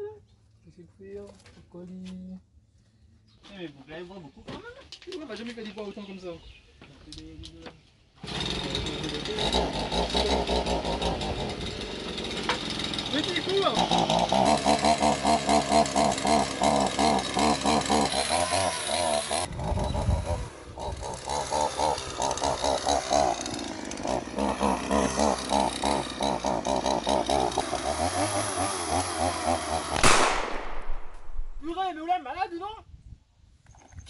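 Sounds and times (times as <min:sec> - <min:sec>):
chainsaw engine pulsing: 0:08.2 - 0:30.8
sharp loud hit: 0:30.0 - 0:31.7.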